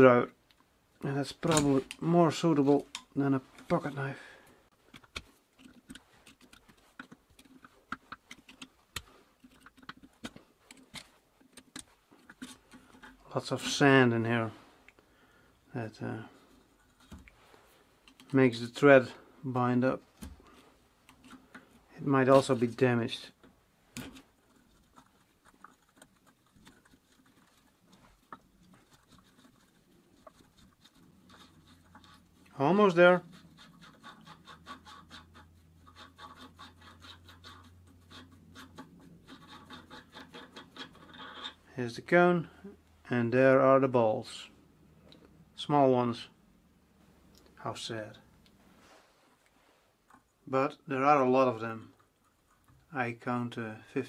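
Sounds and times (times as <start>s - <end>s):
screwdriver scraping metal: 24.0s - 41.7s.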